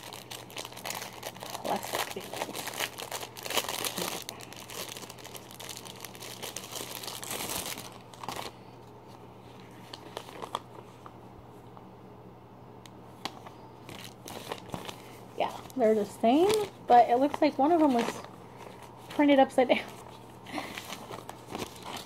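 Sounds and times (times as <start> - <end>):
paper bags rustling: 0.0 - 8.7, 9.5 - 10.9, 13.8 - 22.0
plastic wrapping crinkling and tearing: 0.0 - 8.7, 9.6 - 10.8, 13.8 - 19.3, 19.9 - 22.0.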